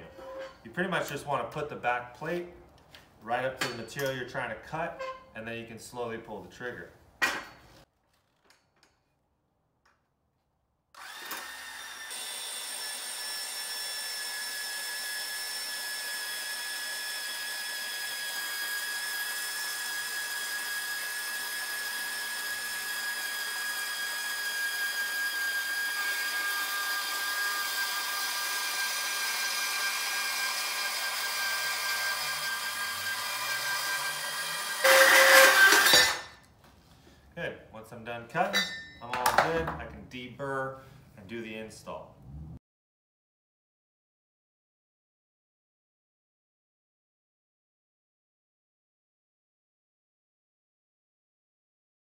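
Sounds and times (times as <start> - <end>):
band saw cutting steel: 11.0 - 36.4, 38.5 - 39.0.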